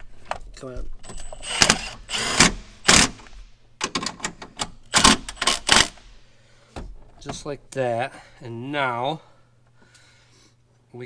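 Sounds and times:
impact driver rattling bursts: 1.1 - 4.1, 4.8 - 6.2.

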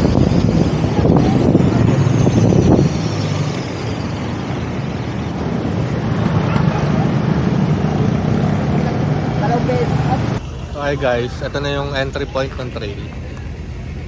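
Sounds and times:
wind buffeting microphone: 0.0 - 9.2
vehicle engine and road noise: 0.0 - 14.0.

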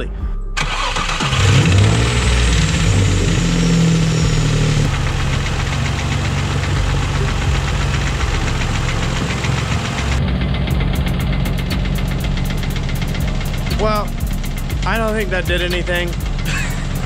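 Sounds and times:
car engine idling: 0.6 - 17.0
rapid engine knock: 4.9 - 17.0.

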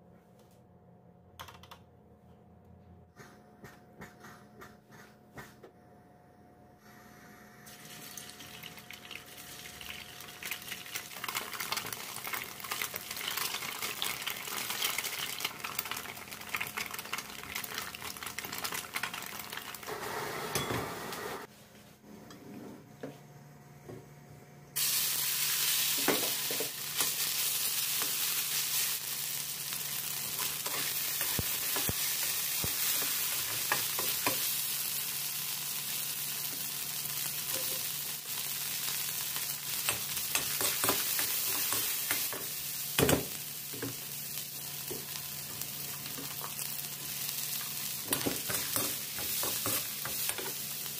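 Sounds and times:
chicken sizzling in a wok: 7.7 - 21.2, 24.8 - 50.9
tofu sizzling in a pan: 24.8 - 50.9.

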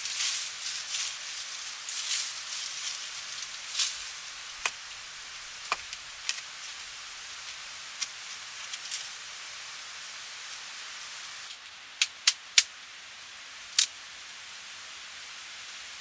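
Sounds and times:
rustling: 0.0 - 9.2
steady high hiss: 0.0 - 16.0.

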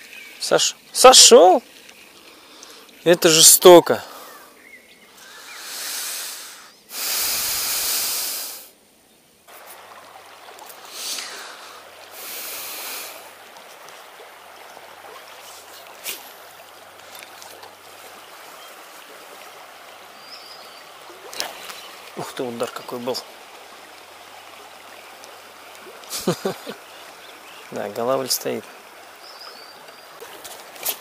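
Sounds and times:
loud hissing bursts: 5.2 - 8.7, 10.9 - 13.2
river water rushing: 9.5 - 31.0.

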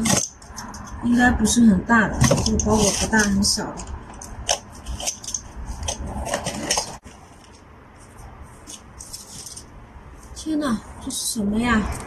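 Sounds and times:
tearing tape and cardboard: 0.0 - 1.0, 2.2 - 7.6.

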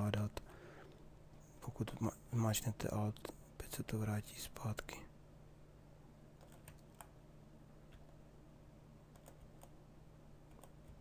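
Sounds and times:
low steady hum: 0.0 - 11.0
computer keys clicking: 6.4 - 7.2, 9.1 - 9.8, 10.5 - 11.0.

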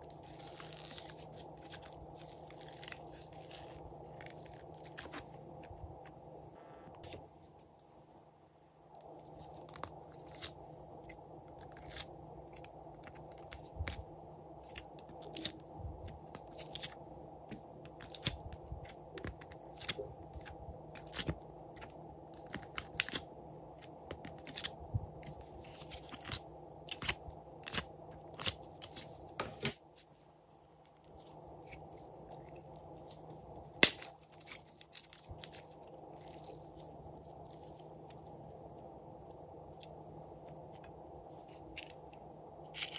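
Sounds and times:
steady low hum: 0.0 - 42.9
clicks and crackles of slime and plastic: 0.1 - 6.2, 9.0 - 14.0, 14.6 - 23.2, 23.8 - 30.1, 31.0 - 38.3.

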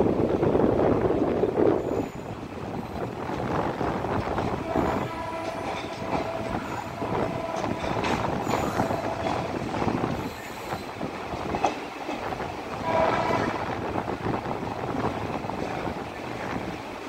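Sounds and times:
train wheels rumbling on rails: 0.0 - 17.0
held tone: 1.8 - 3.3, 4.6 - 10.9.

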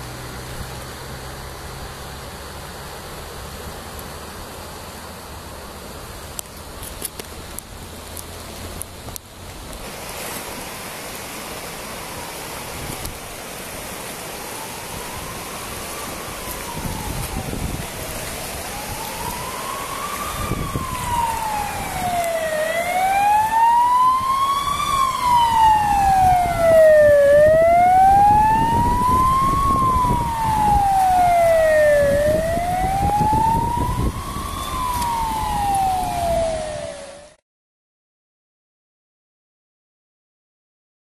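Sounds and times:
river rushing: 0.0 - 37.4
siren wailing: 14.3 - 37.4.

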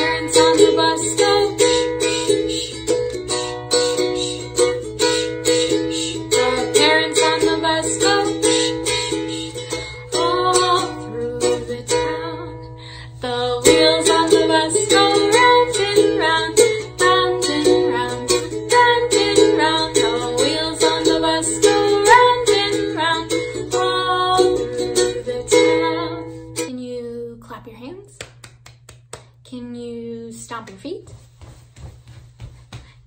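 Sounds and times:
ukulele strumming: 0.0 - 12.6, 13.2 - 26.8.

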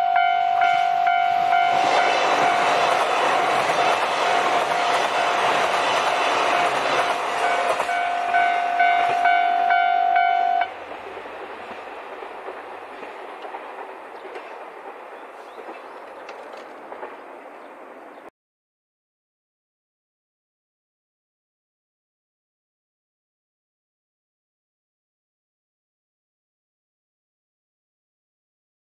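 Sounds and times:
level crossing alarm ringing: 0.0 - 2.8, 7.4 - 10.7
train wheels clattering on rails: 1.1 - 9.4, 10.6 - 18.3.

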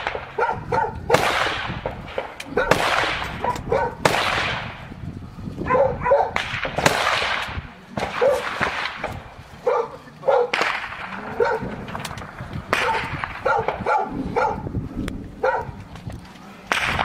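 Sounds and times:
gunshots echoing: 0.0 - 5.0, 6.0 - 9.5, 10.3 - 14.4, 16.7 - 17.0
dog barking: 0.4 - 1.1, 2.5 - 2.8, 3.4 - 4.0, 5.6 - 6.4, 8.2 - 8.4, 9.6 - 10.6, 11.3 - 11.7, 12.8 - 14.7, 15.4 - 15.8.

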